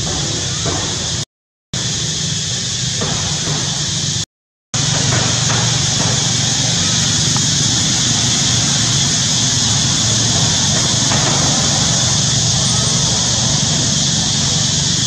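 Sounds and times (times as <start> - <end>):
high even hiss: 1.8 - 15.0
low engine-like hum: 4.8 - 15.0.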